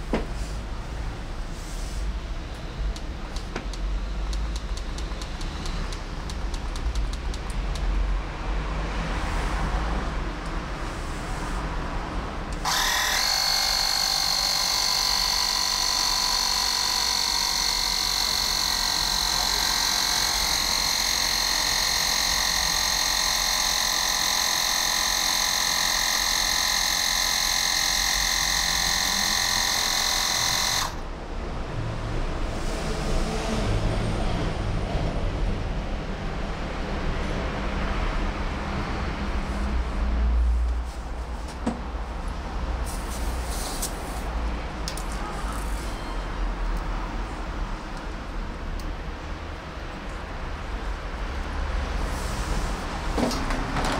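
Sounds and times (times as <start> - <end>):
mini compressor whining: 12.4 - 31.1.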